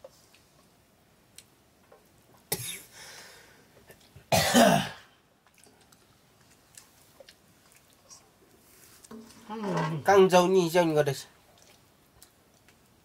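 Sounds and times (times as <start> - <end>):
person coughing: 2.5 - 2.9, 4.3 - 5.1.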